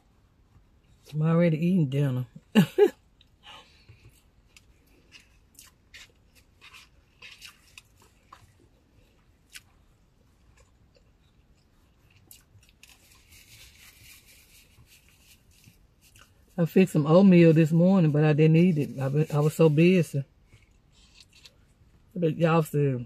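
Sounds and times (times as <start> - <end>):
person chewing food: 3.1 - 16.6, 20.4 - 21.8.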